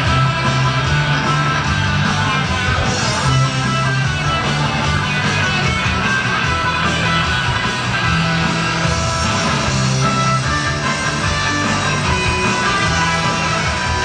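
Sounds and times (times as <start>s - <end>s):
guitar-driven music: 0.0s - 14.0s.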